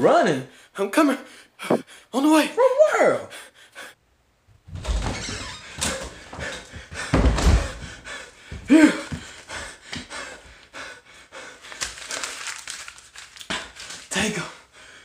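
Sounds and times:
heavy thumps and clattering: 0:05.8 - 0:08.7.

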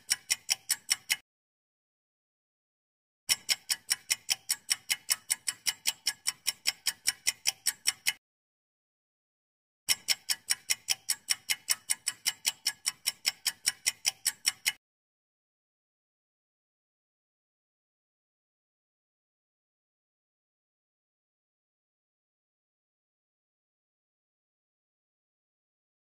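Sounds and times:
fast clock ticking: 0:00.0 - 0:01.2, 0:03.3 - 0:08.2, 0:09.9 - 0:14.8.

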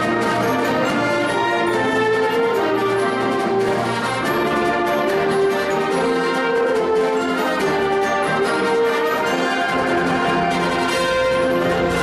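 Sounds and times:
concert band playing chords: 0:07.6 - 0:12.0.

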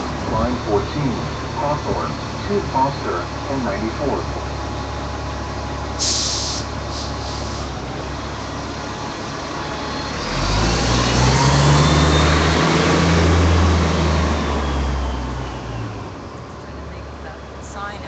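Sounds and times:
bus engine revving: 0:00.0 - 0:16.5
air brakes hissing: 0:06.0 - 0:07.8.

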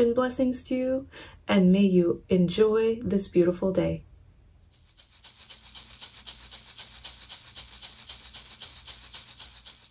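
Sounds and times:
ocean rattle shaken: 0:04.6 - 0:09.9.

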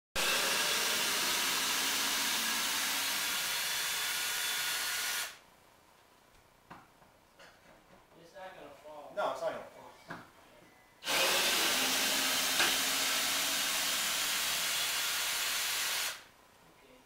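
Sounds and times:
cordless drill whirring: 0:00.2 - 0:05.4, 0:11.0 - 0:16.3.

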